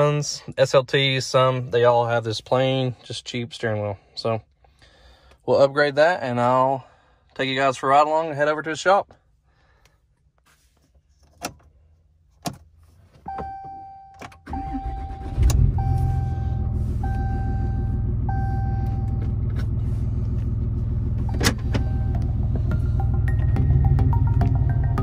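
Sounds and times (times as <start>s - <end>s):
diesel engine cranking and idling: 14.4s - 25.0s
warning chime dinging: 21.3s - 25.0s.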